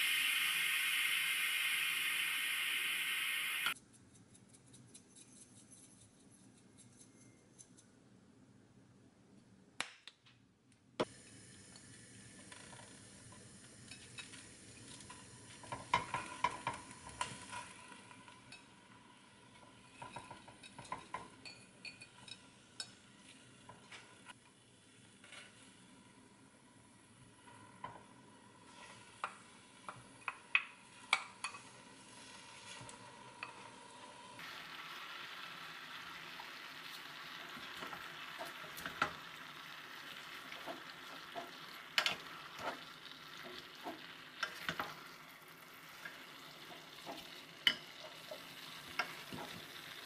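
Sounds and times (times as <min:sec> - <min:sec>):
loud steady hiss: 0:00.0 - 0:03.8.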